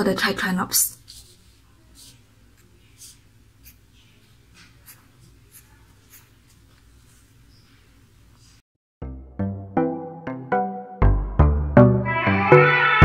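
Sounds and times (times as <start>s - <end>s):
pen scratching on paper: 1.1s - 4.0s, 4.6s - 7.3s.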